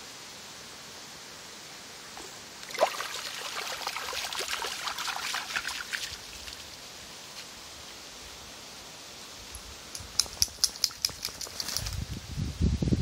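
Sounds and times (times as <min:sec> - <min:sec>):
dog splashing through creek: 0:02.6 - 0:06.8.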